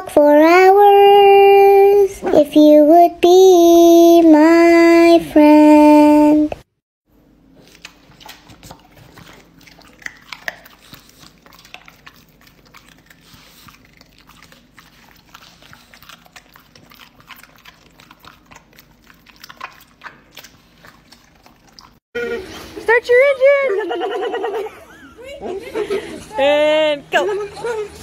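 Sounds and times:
dog mouth clicks and smacks: 7.7s - 14.6s.

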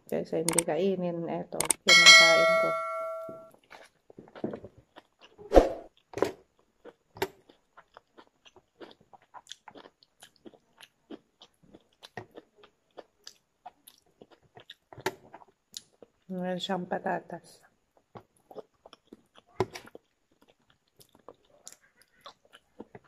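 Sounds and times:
person chewing food: 3.6s - 16.3s, 17.7s - 23.0s.

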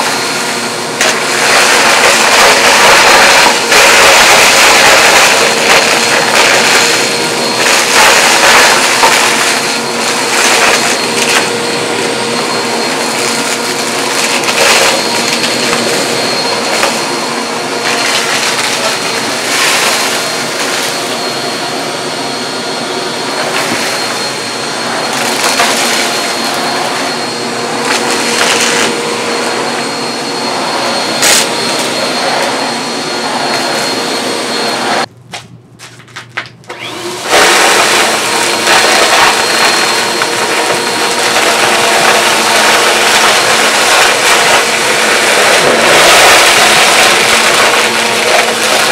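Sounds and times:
vacuum cleaner running: 0.0s - 35.1s, 36.6s - 48.9s.

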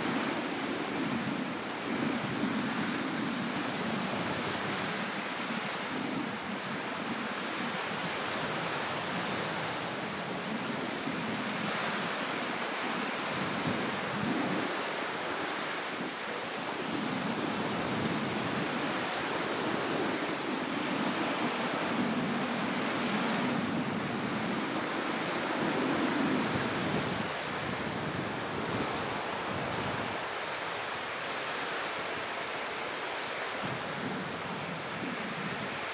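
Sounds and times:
waves breaking on shore: 0.0s - 35.9s.

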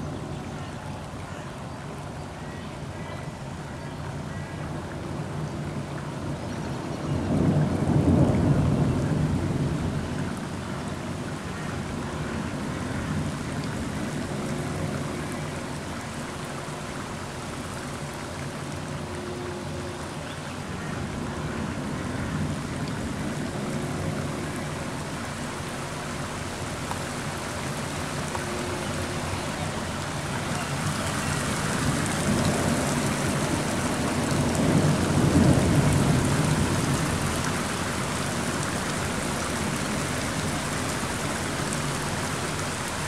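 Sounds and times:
steady rain: 0.0s - 43.0s
thunder rumbling: 7.1s - 15.8s, 21.0s - 41.1s.

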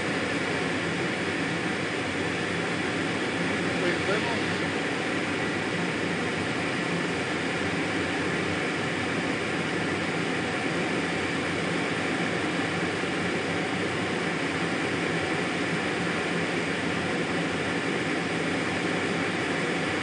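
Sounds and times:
jet engine and rushing air: 0.0s - 16.0s.

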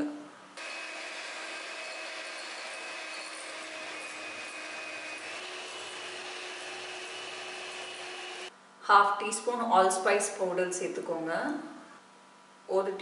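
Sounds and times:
electric hand mixer whine: 0.6s - 8.5s.

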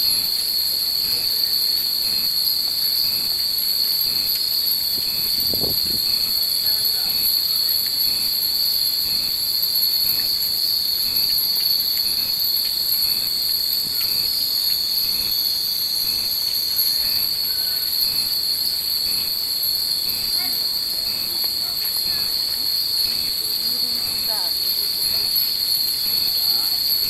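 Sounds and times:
high-pitched insect drone: 0.0s - 27.0s
wind chimes tinkling: 16.3s - 27.0s.

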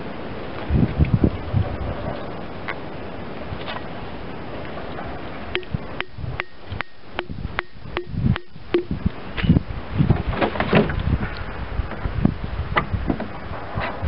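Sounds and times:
mallet tapping a spile: 5.6s - 9.0s.

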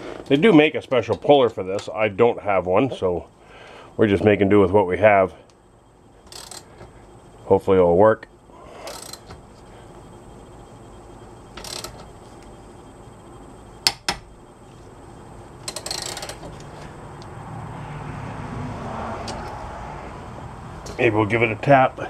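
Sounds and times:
ratchet clicking: 6.3s - 6.7s, 8.9s - 9.3s, 11.6s - 12.0s, 15.6s - 16.5s.

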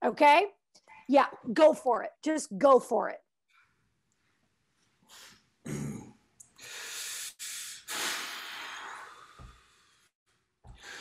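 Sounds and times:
man breathing heavily: 6.6s - 10.1s, 10.7s - 11.0s.

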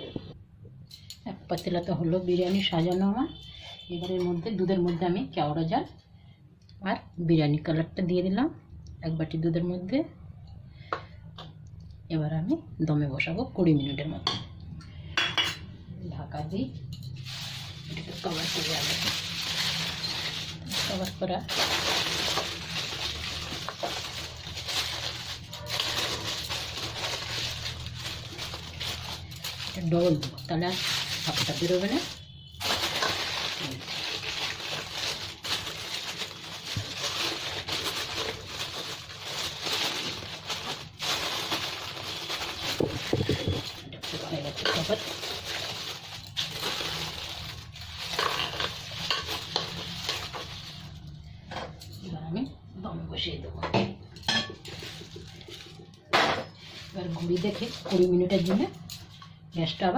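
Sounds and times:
aluminium foil crinkling: 16.8s - 52.0s, 54.2s - 59.3s.

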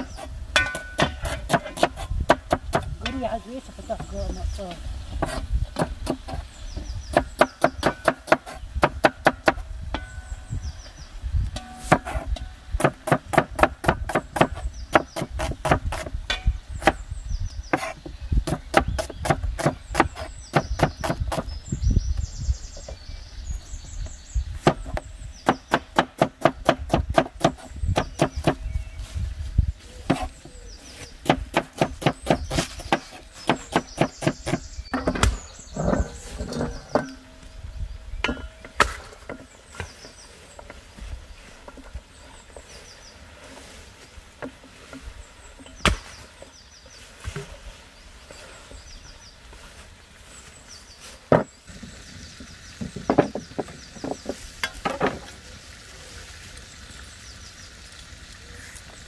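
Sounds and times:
knife chopping on wooden board: 7.1s - 9.6s, 11.9s - 16.1s, 17.7s - 21.5s, 31.2s - 35.4s.

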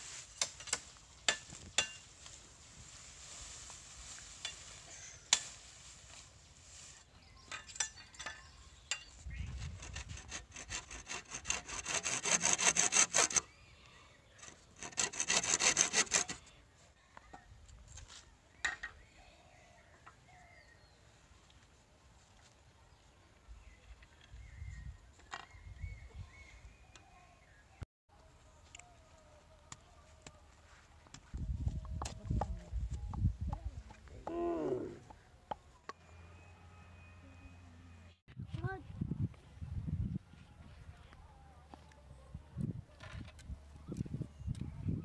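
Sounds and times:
hand saw cutting bamboo: 9.6s - 13.5s, 14.4s - 16.5s.

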